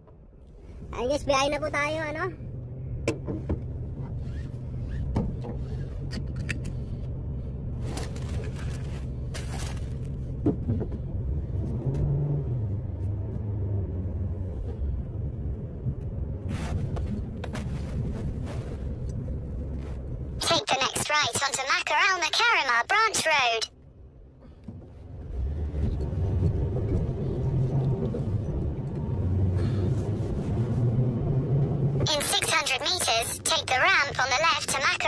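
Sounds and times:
car engine low rumble: 0:00.0 - 0:20.4, 0:23.8 - 0:32.8.

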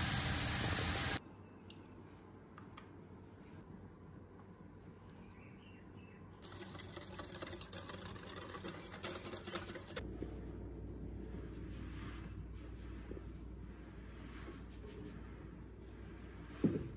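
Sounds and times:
whisk clattering in glass bowl: 0:06.4 - 0:10.0.

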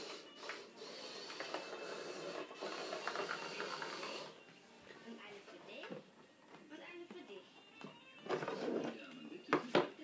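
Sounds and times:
toy motors whirring: 0:00.0 - 0:04.4.

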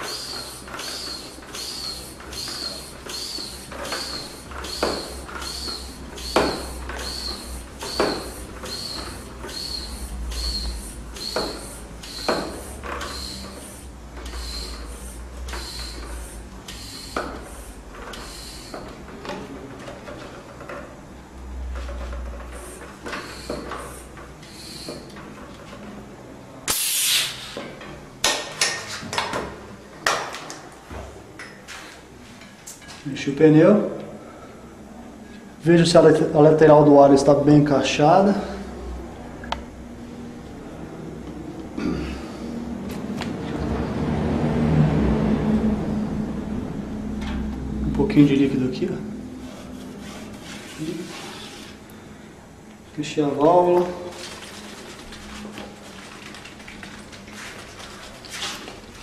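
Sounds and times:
air hissing from pump: 0:00.0 - 0:19.0, 0:22.5 - 0:25.1, 0:26.6 - 0:27.8
air rushing from pump: 0:26.6 - 0:27.8.

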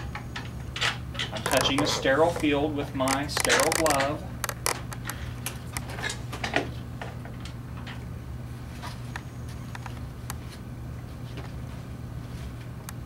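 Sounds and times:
steady low hum: 0:00.0 - 0:13.0
small irregular clicks: 0:02.4 - 0:05.9.

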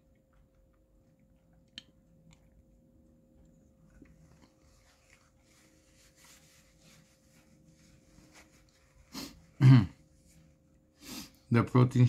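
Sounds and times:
paper napkin rustling: 0:04.2 - 0:09.5.

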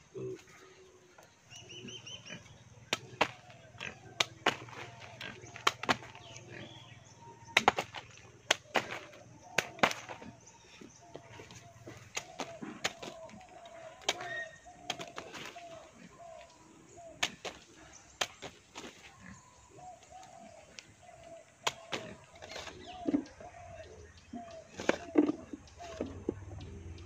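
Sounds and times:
bird calling in dipping notes: 0:01.5 - 0:17.6.

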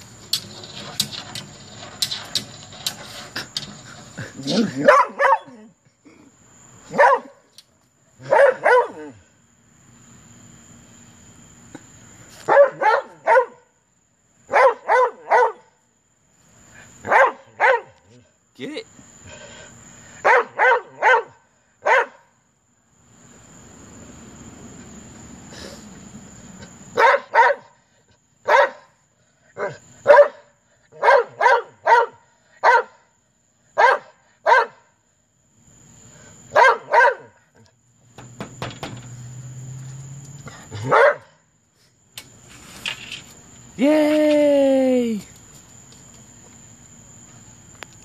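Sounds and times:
dog barking: 0:04.7 - 0:05.6, 0:06.9 - 0:07.4, 0:08.2 - 0:09.2, 0:12.4 - 0:13.7, 0:14.5 - 0:15.8, 0:17.0 - 0:18.0, 0:20.2 - 0:22.3, 0:27.0 - 0:27.8, 0:28.4 - 0:28.9, 0:29.6 - 0:33.1, 0:33.8 - 0:34.9, 0:36.5 - 0:37.4, 0:40.8 - 0:41.4.

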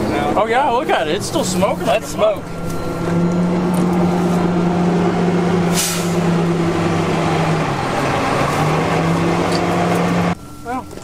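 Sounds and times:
diesel truck engine running: 0:00.0 - 0:11.0
short hiss: 0:05.7 - 0:06.2.

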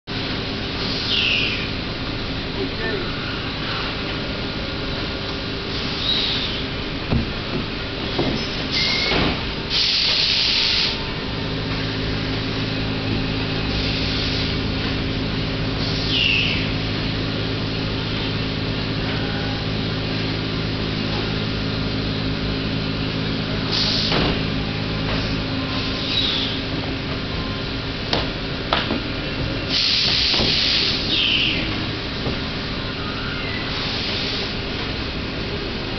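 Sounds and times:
short squeak: 0:08.8 - 0:09.2
machine hum: 0:10.9 - 0:35.9.

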